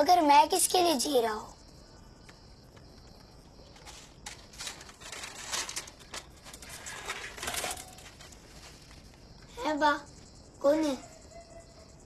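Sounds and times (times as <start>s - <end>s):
person rustling and scuffing: 2.9s - 9.4s.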